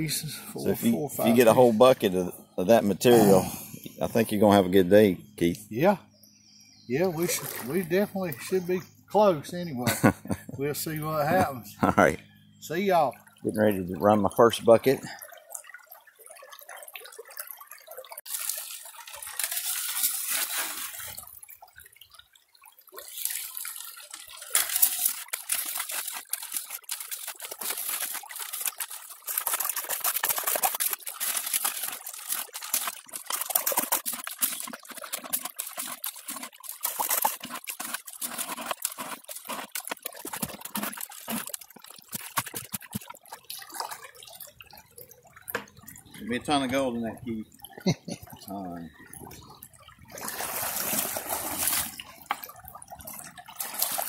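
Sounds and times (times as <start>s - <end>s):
water splashing in sluice box: 6.9s - 9.3s, 12.8s - 54.0s
gravelly clicks: 24.0s - 49.6s.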